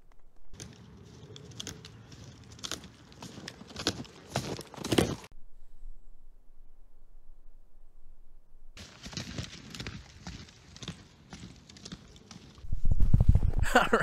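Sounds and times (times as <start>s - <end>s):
boots crunching in snow: 2.0s - 5.3s.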